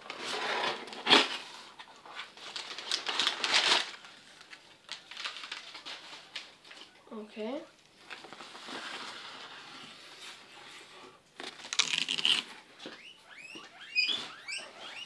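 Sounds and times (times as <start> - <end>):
cardboard packaging rustling: 0.0 - 6.9, 8.0 - 12.9
cardboard crunching: 11.4 - 12.6
guinea pigs squealing: 11.8 - 15.0.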